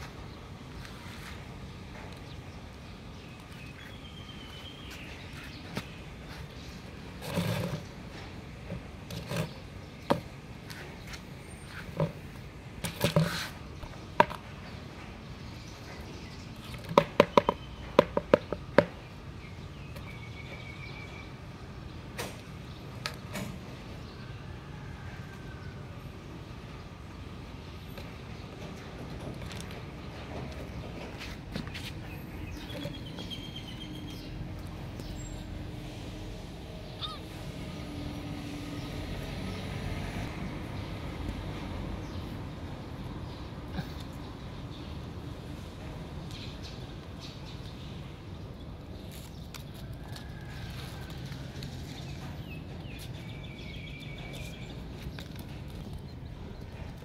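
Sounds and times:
taps on a plastic bucket: 16.8 - 19.0.

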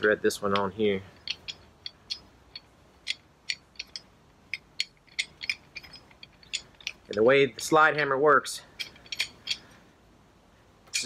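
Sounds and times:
metallic clicks of hook screwing: 0.0 - 7.7, 8.7 - 9.8.

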